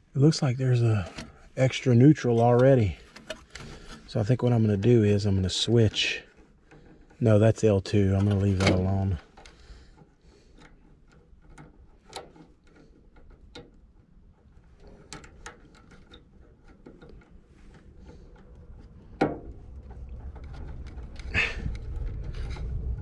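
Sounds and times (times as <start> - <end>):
small clicks and rattles of wires: 0.0 - 23.0
low rumble: 18.5 - 23.0.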